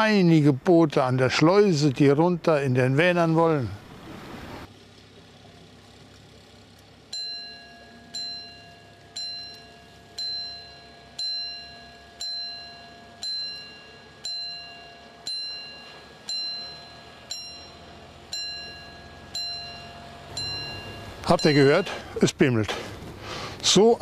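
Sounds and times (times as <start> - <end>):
warning bell ringing: 7.1 - 22.6.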